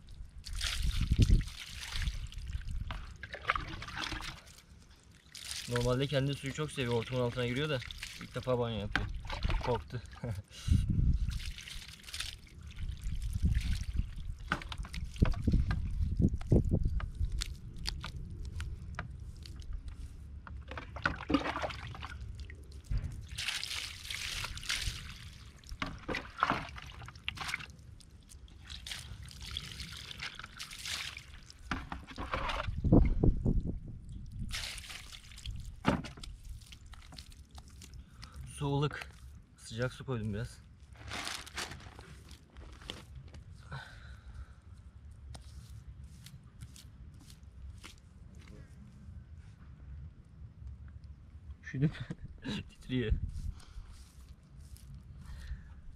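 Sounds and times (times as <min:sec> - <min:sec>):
water pouring and splashing: 0:00.0 - 0:43.2.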